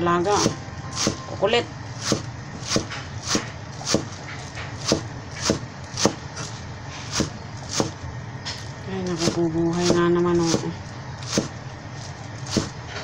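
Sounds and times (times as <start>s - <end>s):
low steady hum: 0.0s - 13.0s
knife chopping on wooden board: 0.4s - 1.3s, 2.0s - 6.5s, 7.1s - 8.0s, 9.2s - 11.6s, 12.4s - 12.8s.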